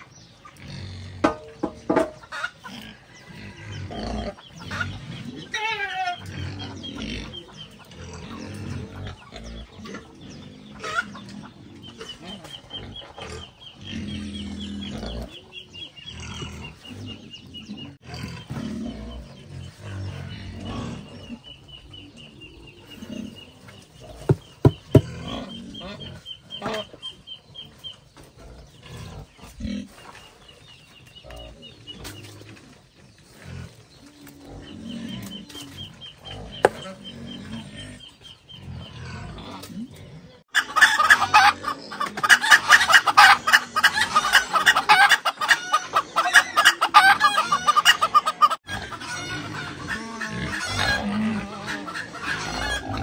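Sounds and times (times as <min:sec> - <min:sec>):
chickens clucking: 0:00.0 - 0:53.0
sharp knocks: 0:01.2 - 0:02.2, 0:24.3 - 0:25.1.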